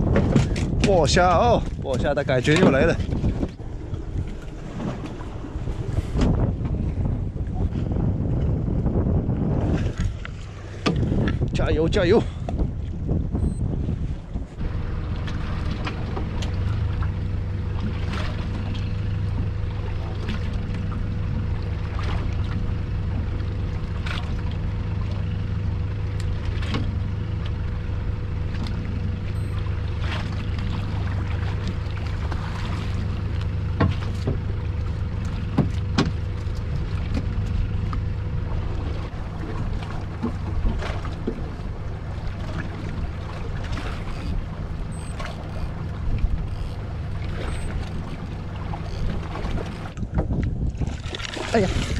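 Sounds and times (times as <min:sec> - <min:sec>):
boat engine humming: 0:00.0 - 0:51.9
sharp clicks and knocks: 0:35.2 - 0:38.0.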